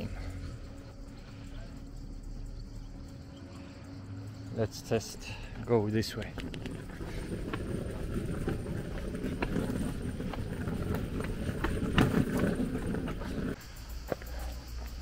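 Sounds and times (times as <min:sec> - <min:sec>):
footsteps on pavement: 0:06.0 - 0:15.0.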